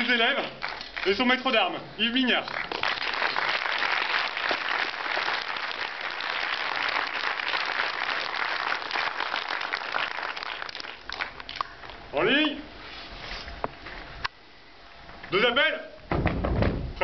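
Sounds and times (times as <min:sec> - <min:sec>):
audience applauding: 0:00.3 - 0:01.4, 0:02.5 - 0:11.9.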